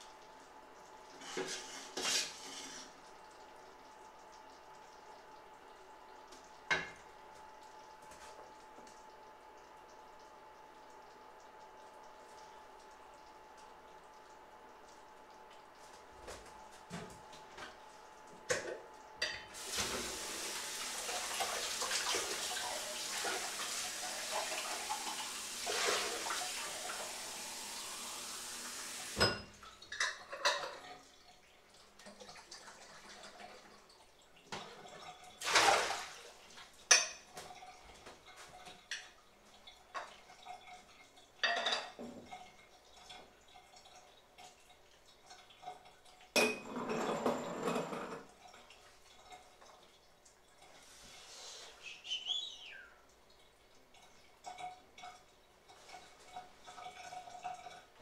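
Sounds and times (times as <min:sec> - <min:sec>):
kitchen tap running: 0:00.0 - 0:51.0
pots and utensils clattering: 0:01.2 - 0:03.0, 0:29.0 - 0:31.0, 0:41.4 - 0:42.4, 0:46.4 - 0:48.3.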